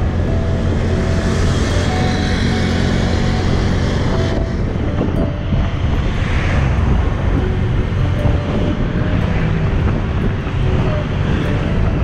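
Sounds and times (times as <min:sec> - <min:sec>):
motorbike engine hum: 0:00.0 - 0:12.0
wind rumble on microphone: 0:00.0 - 0:12.0.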